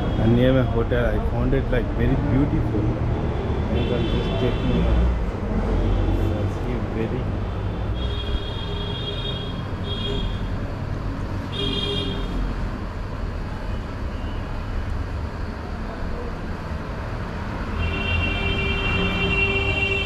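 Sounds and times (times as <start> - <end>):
road traffic rumbling: 0.0 - 20.0
vehicle horns honking: 7.6 - 10.6, 11.4 - 12.5, 17.7 - 20.0.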